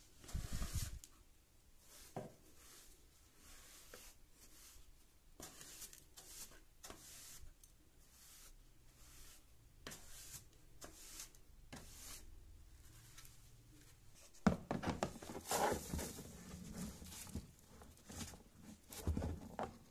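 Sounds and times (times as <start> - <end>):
brush sweeping wood: 0.2 - 1.1, 1.8 - 12.3, 15.2 - 19.4
rustling and tapping in bin: 14.4 - 19.9.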